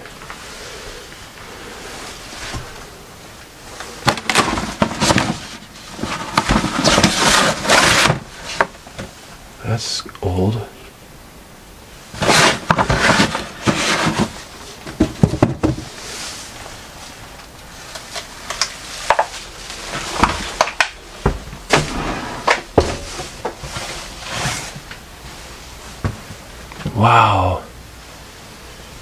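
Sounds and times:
objects rustling and clattering: 1.0 - 9.4, 12.1 - 26.9.

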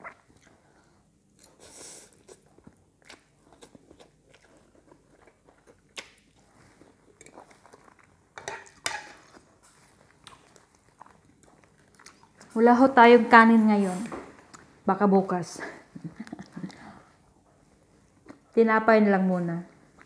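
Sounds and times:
person chewing noodles: 0.0 - 12.6.

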